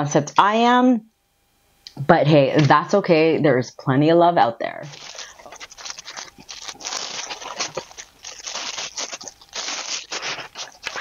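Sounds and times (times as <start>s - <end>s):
plastic packaging crinkling: 4.9s - 11.0s.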